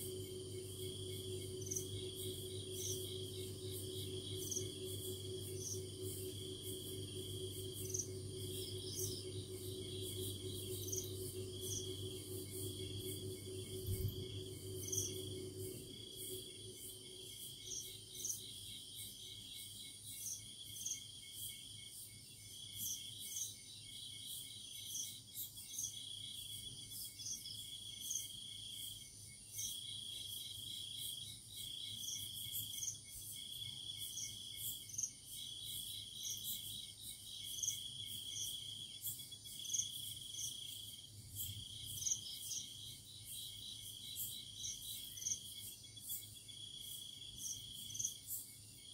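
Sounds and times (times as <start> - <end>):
insect trilling: 0.0 - 18.4
insect high chirps: 0.0 - 48.9.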